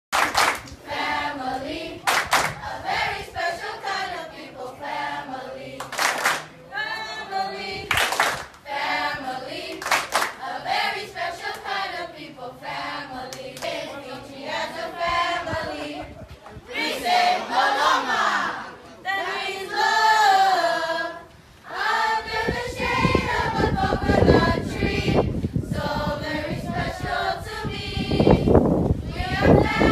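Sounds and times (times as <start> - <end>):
hand claps: 0.2 - 0.8, 2.1 - 2.6, 5.8 - 6.5, 7.9 - 8.6, 9.7 - 10.4
children's choir singing: 0.2 - 6.1, 6.8 - 8.0, 8.6 - 16.1, 16.7 - 29.9.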